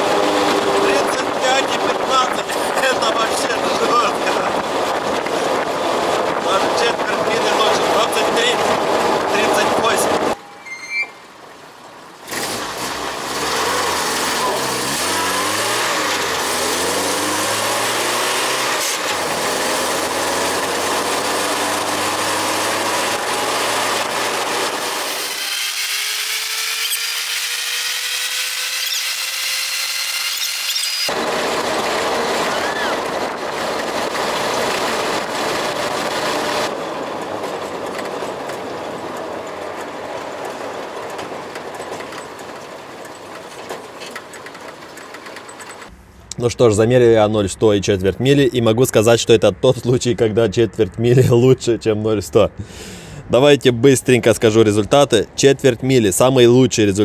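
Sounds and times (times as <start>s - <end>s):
vehicle engine revving: 0.0s - 10.4s, 12.2s - 46.3s.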